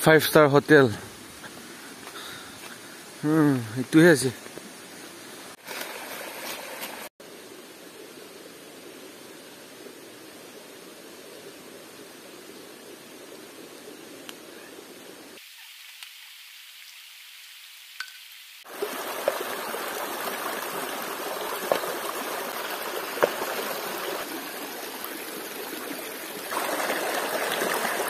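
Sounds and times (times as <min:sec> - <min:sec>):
river water rushing: 0:18.7 - 0:28.0.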